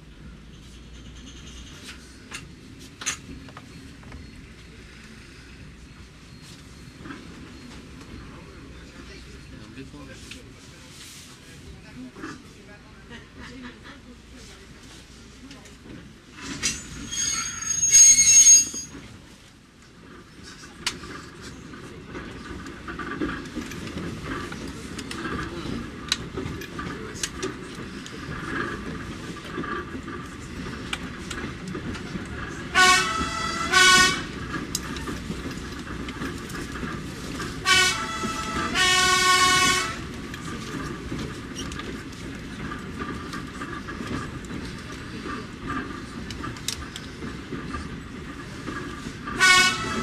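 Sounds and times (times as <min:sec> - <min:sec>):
diesel railcar rolling on track: 0:00.0 - 0:50.0
two-tone train horn blasts: 0:32.7 - 0:34.4, 0:37.6 - 0:40.1, 0:49.4 - 0:50.0.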